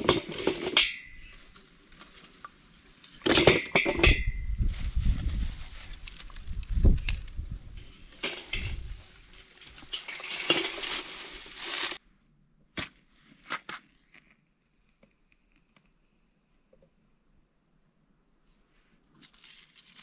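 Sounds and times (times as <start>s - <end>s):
twigs and leaves rustling: 0.0s - 12.0s, 19.1s - 20.0s.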